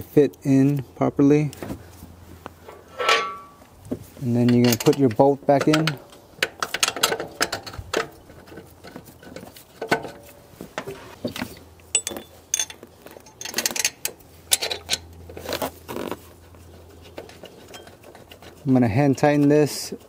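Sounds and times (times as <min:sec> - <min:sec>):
light metallic clicks and clinks: 0:11.8 - 0:15.1.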